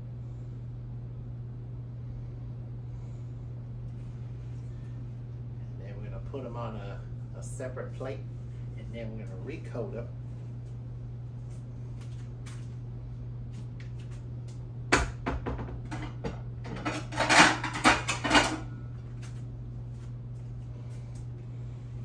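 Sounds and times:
steady low hum: 0.0 - 22.0
dishes and utensils clattering: 15.9 - 18.7.

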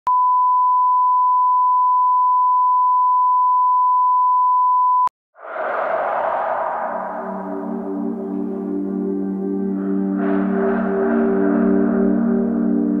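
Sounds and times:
steady test tone: 5.4 - 10.2
ambient music with gong swell: 5.6 - 13.0.

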